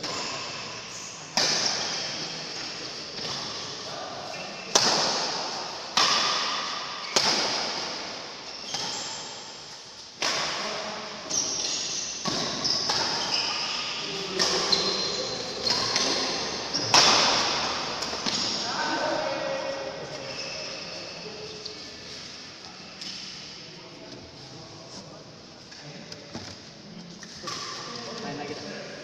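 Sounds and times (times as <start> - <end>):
rackets hitting shuttlecock: 1.3 - 3.6, 4.7 - 9.2, 10.2 - 18.7
shoe squeaks: 8.4 - 9.3, 11.3 - 17.1, 20.2 - 21.9.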